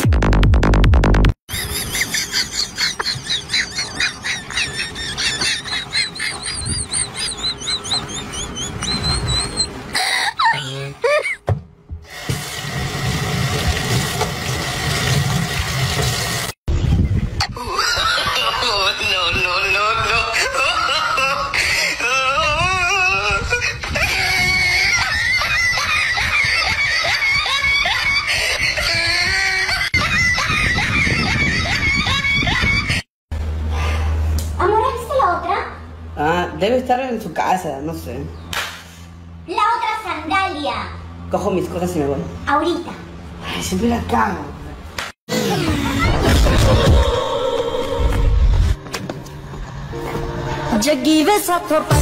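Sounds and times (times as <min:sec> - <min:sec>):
sponge squeaking while scrubbing: 0:02.9 - 0:09.8.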